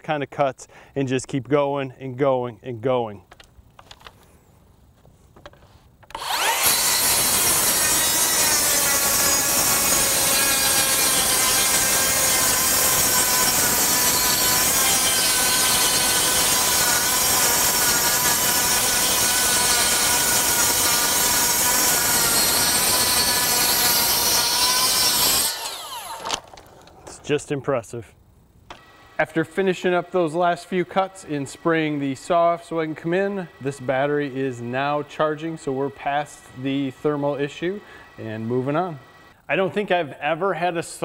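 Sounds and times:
circular saw cutting wood: 6.1s - 26.4s, 28.7s - 39.9s.

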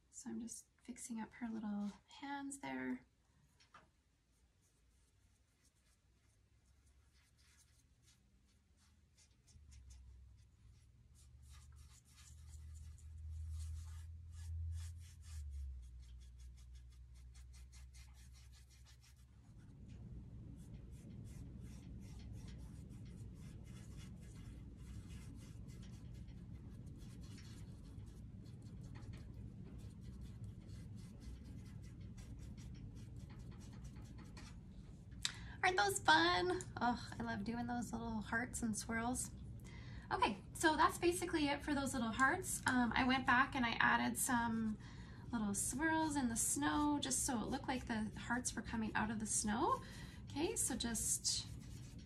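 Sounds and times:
low hum: 6.7s - 42.8s.

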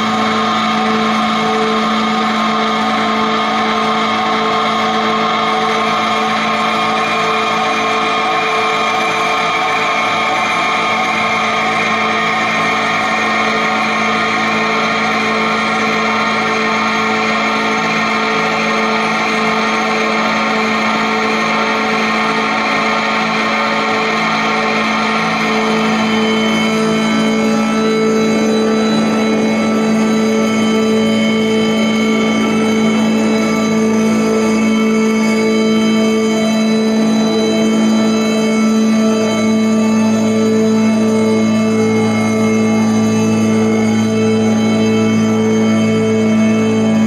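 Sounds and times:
ensemble holding drone chord: 0.0s - 47.0s.

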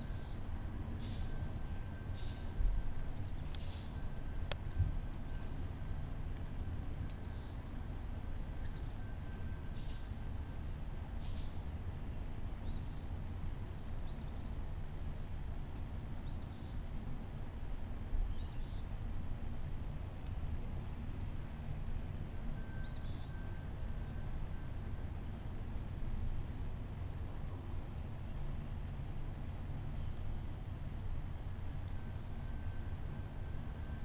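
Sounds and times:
faint high bird chirps: 0.0s - 4.5s, 7.1s - 7.6s, 8.4s - 10.2s, 10.9s - 11.6s, 12.6s - 13.2s, 14.0s - 14.8s, 16.2s - 16.8s, 18.3s - 19.0s, 22.6s - 24.2s
steady high-pitched hum: 0.0s - 34.0s.

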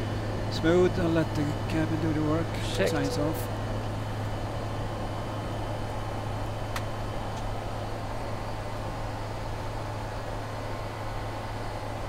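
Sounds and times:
steady low hum: 0.1s - 6.6s.

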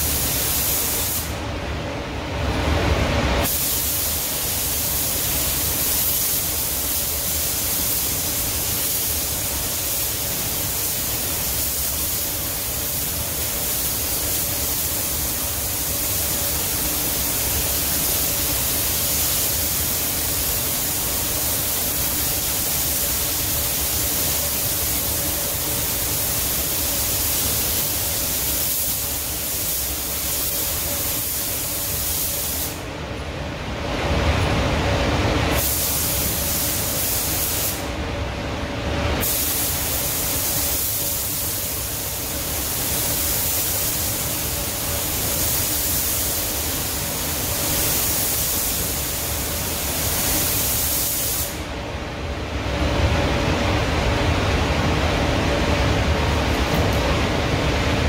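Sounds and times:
spray gun hissing: 0.0s - 1.4s, 3.4s - 32.9s, 35.5s - 38.0s, 39.2s - 51.7s.

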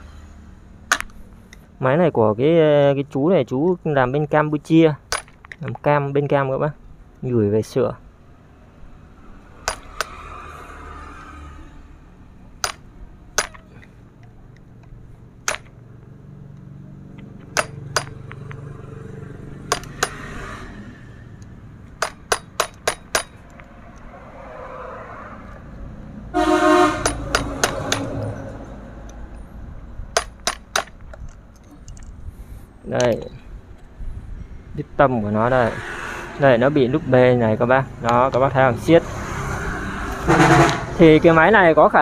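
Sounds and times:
metal tools clinking: 5.1s - 5.9s, 9.6s - 10.2s, 12.6s - 15.8s, 17.1s - 18.8s, 19.7s - 20.3s, 21.8s - 24.1s, 30.2s - 32.2s
horn-like pitched tone: 26.3s - 27.2s, 40.2s - 41.0s.

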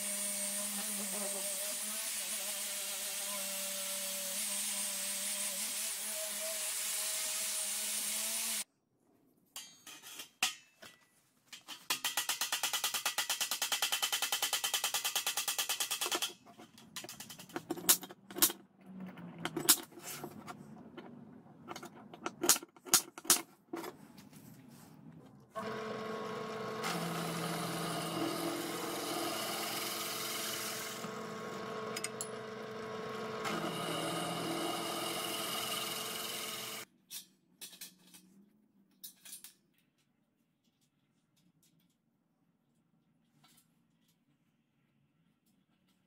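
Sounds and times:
drill press motor drilling steel: 25.6s - 36.8s.

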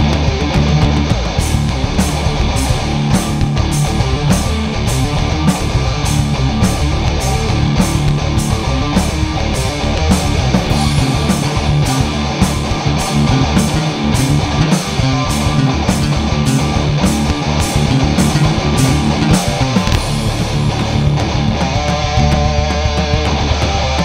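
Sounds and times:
bass guitar: 0.0s - 24.0s
drum kit: 0.0s - 24.0s
electric guitar: 0.0s - 24.0s.

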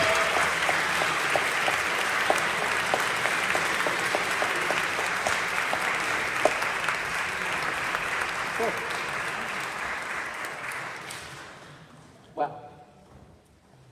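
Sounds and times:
single person clapping: 0.0s - 9.7s
audience applauding: 0.0s - 11.7s.

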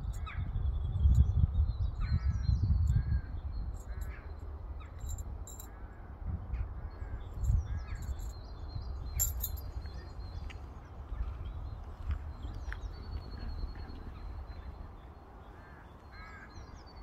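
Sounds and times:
harsh bird calls: 12.4s - 17.0s.

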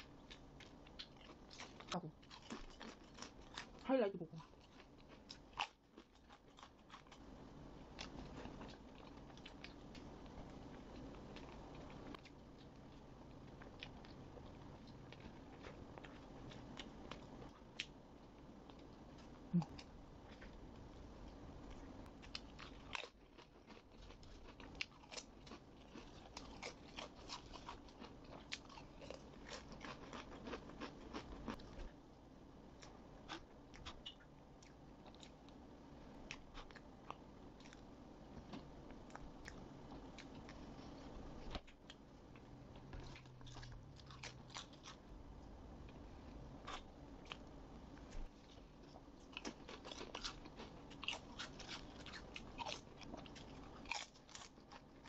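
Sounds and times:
soft chewing of cake: 0.0s - 55.0s
crisp chips crunching: 22.3s - 31.8s, 49.3s - 55.0s.

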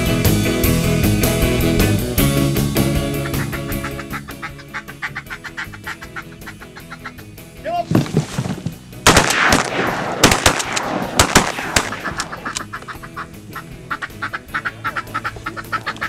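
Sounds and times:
ducks quacking: 2.7s - 8.8s, 11.5s - 16.0s
shotgun shots echoing: 9.0s - 12.9s.

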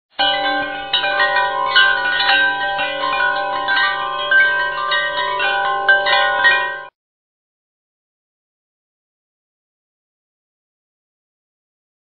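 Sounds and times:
chiming bell-like music: 0.2s - 7.0s.

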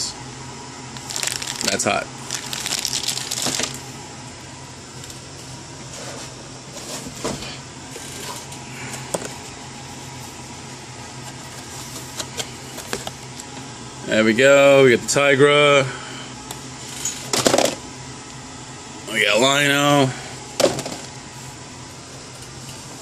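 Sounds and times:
low steady hum: 0.0s - 23.0s
plastic packaging crinkling: 1.0s - 3.8s.

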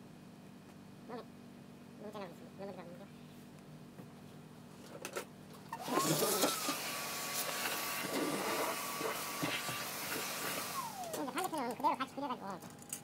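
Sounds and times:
handheld vacuum cleaner whining: 5.7s - 11.8s.

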